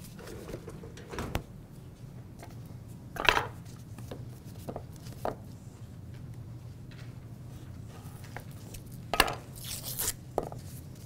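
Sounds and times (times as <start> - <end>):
kitchen knocks and clatters: 0.2 - 1.5.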